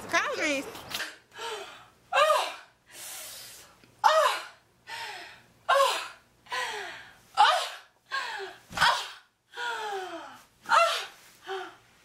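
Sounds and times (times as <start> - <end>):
woman crying out and gasping: 1.4 - 2.8, 4.0 - 11.8
loud breath: 2.8 - 3.8, 6.5 - 7.2.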